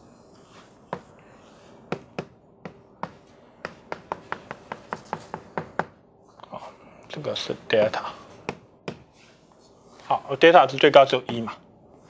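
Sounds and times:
chalk tapping on blackboard: 0:01.9 - 0:05.9, 0:08.5 - 0:09.2.

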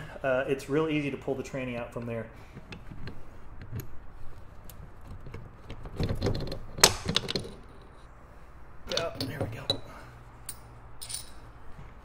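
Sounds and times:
metal parts clicking and clinking: 0:04.7 - 0:08.0, 0:08.9 - 0:11.6.

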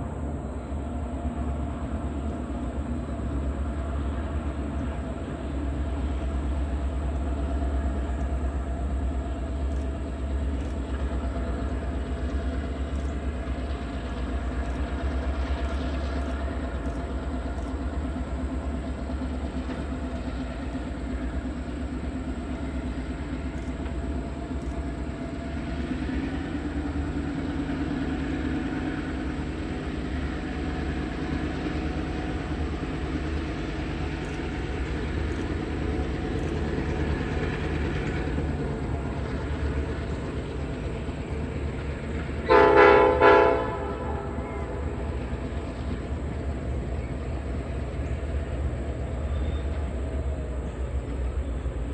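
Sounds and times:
locomotive engine drone: 0:00.0 - 0:51.9.

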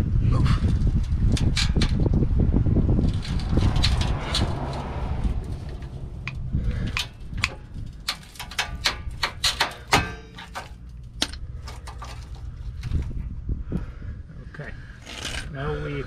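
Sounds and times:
bolt cutters snapping steel cable: 0:05.8 - 0:12.0.

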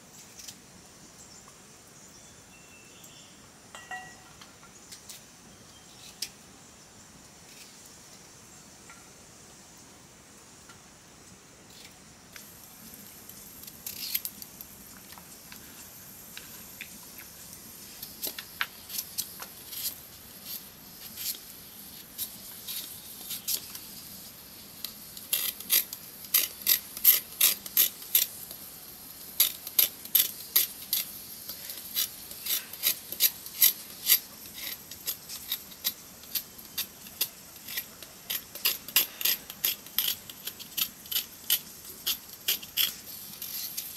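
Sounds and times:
knife scraping potato skin: 0:18.0 - 0:23.9, 0:24.9 - 0:28.5, 0:29.4 - 0:43.9.

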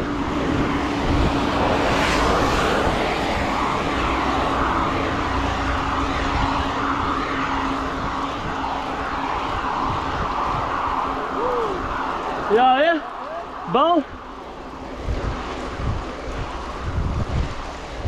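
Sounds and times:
low rumble: 0:00.0 - 0:12.2
wind rushing on microphone: 0:00.0 - 0:18.0.

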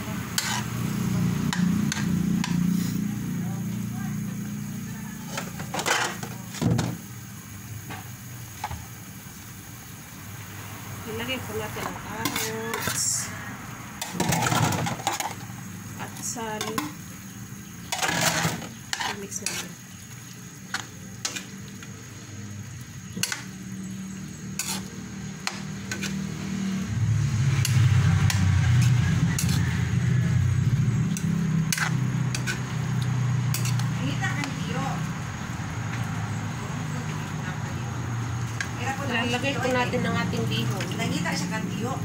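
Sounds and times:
spatula scraping in a wok: 0:00.0 - 0:03.4, 0:04.6 - 0:07.0, 0:11.1 - 0:36.6
light sizzle: 0:00.0 - 0:42.0
spatula clanking against pan: 0:31.1 - 0:32.6, 0:33.5 - 0:33.8.

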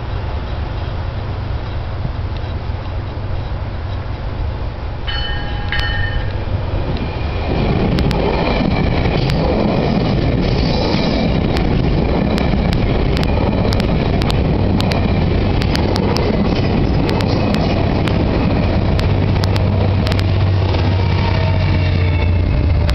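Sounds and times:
diesel locomotive drone: 0:00.0 - 0:22.9
train coaches rumbling on rails: 0:00.0 - 0:22.9.

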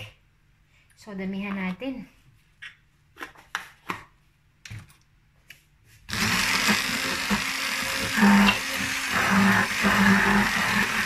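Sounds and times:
stick blender whirring: 0:06.1 - 0:11.0.

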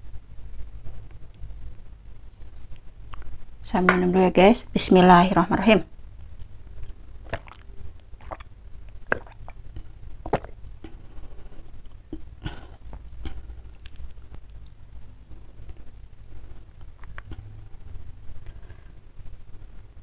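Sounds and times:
person gulping water: 0:06.8 - 0:11.0.

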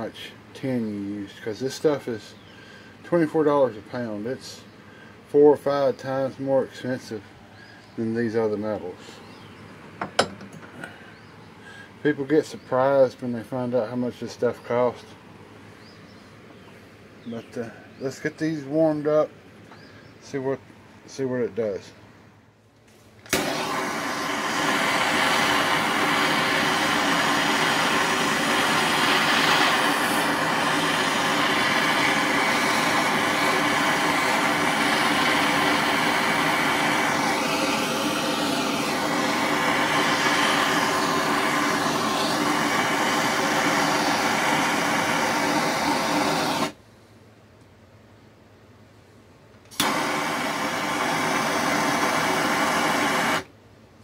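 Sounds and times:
gas torch hissing: 0:23.3 - 0:46.8, 0:49.7 - 0:53.5.

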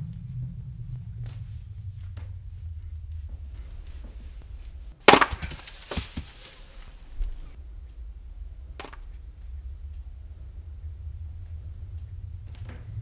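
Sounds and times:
low steady hum: 0:00.0 - 0:13.0
wood splintering: 0:03.4 - 0:07.6
axe striking wood: 0:05.0 - 0:06.5.

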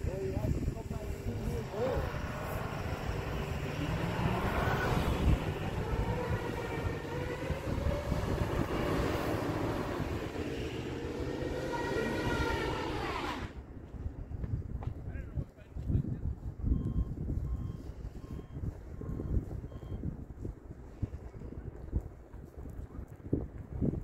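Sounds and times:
truck engine revving: 0:00.0 - 0:13.6
whine rising and falling: 0:01.2 - 0:13.6.

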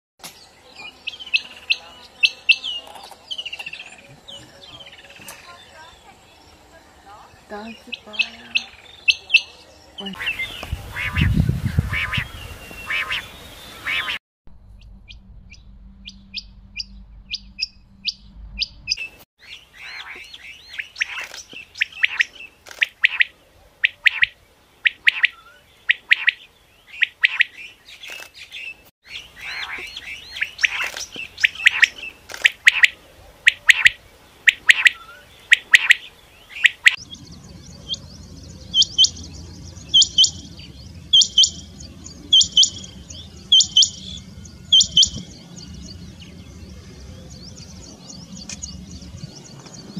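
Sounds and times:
quails calling: 0:07.5 - 0:14.2, 0:16.0 - 0:37.2, 0:38.7 - 0:39.2, 0:39.9 - 0:41.7, 0:42.3 - 0:45.2.

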